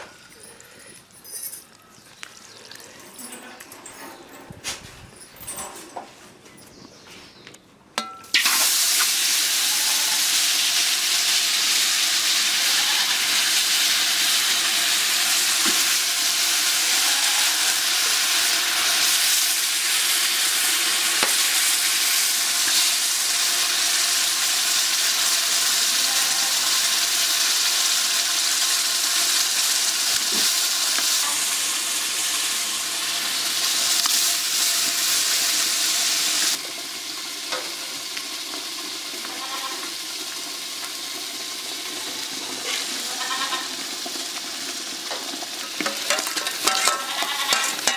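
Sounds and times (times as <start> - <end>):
ladle clinking in a pot: 8.0 - 8.4, 45.8 - 47.9
pot sizzling: 8.0 - 47.9.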